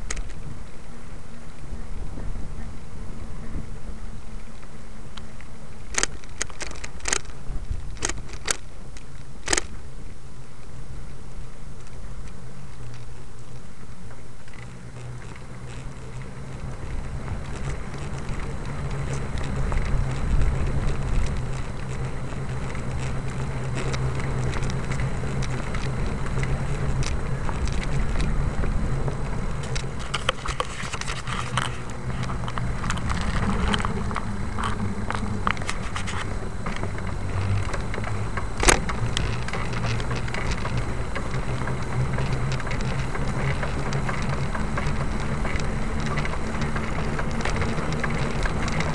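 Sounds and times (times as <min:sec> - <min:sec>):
camera crackling and rattling: 0:00.0 - 0:48.9
steady low rumble: 0:00.0 - 0:48.9
sharp click: 0:09.4 - 0:09.8.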